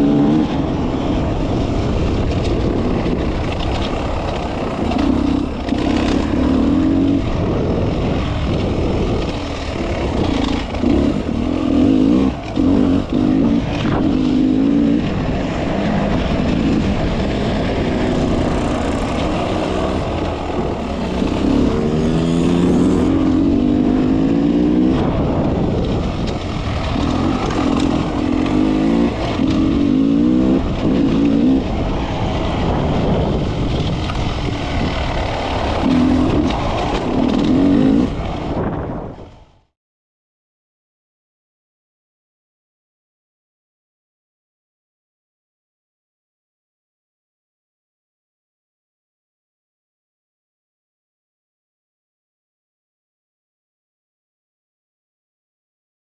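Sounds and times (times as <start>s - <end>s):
motorcycle engine revving: 0.0s - 39.2s.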